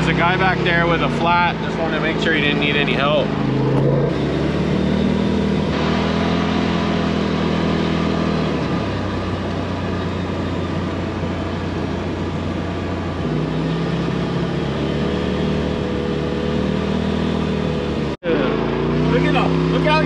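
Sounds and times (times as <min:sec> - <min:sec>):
utility vehicle engine running: 0:00.0 - 0:20.0.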